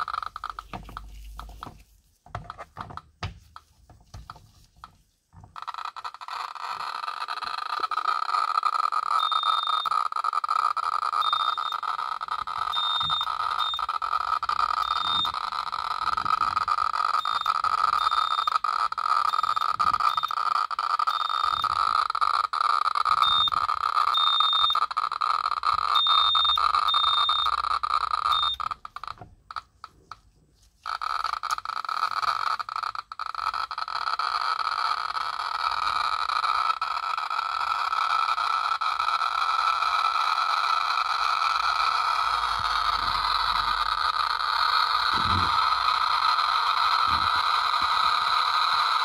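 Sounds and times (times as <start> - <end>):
geiger counter buzzing clicks: 5.5 - 30.2, 30.8 - 49.0
short high beeps: 9.2 - 9.9, 11.2 - 11.8, 12.7 - 13.9, 14.8 - 15.4, 17.2 - 18.6, 19.3 - 20.4, 23.2 - 23.6, 24.2 - 24.8, 26.0 - 27.6, 28.3 - 28.7.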